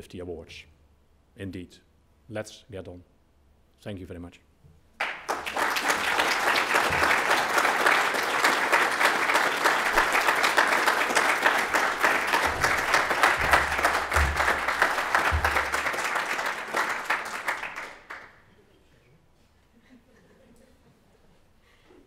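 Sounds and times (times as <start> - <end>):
audience applauding: 5.0 - 18.5.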